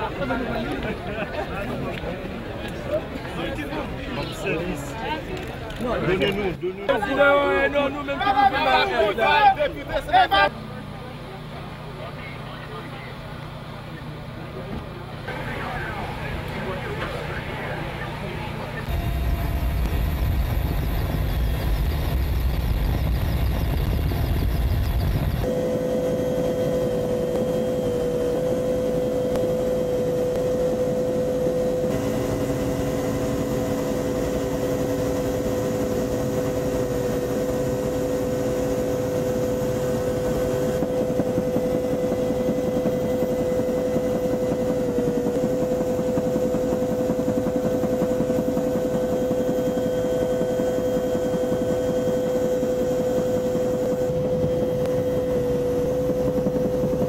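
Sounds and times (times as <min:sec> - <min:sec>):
aircraft engine drone: 0:07.6 - 0:57.0
constant rushing noise: 0:14.5 - 0:57.0.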